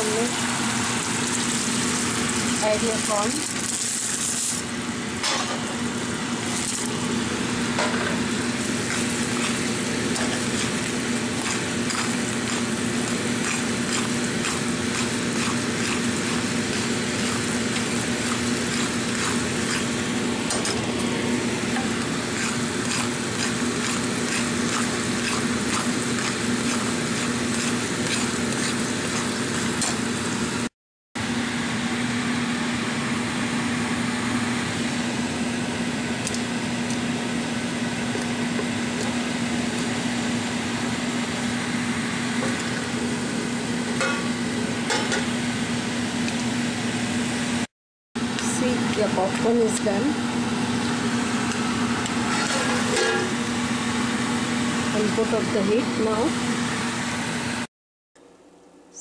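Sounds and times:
popcorn sizzling in caramel: 0.0 - 4.8, 8.4 - 30.7
spatula stirring in pan: 8.7 - 30.0.

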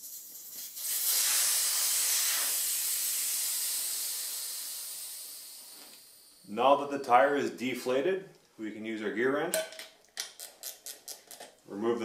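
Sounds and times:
air hissing out of tire valve: 0.0 - 6.5.

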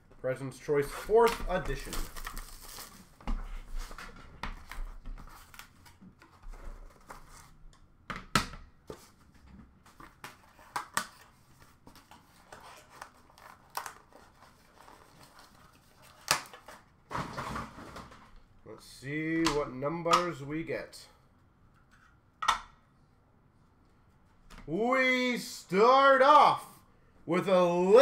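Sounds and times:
packaging crinkling and tearing: 12.0 - 16.8.

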